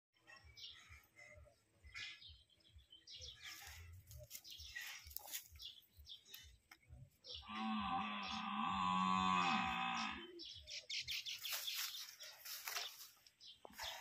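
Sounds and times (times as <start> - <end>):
ox mooing: 7.4 - 10.4.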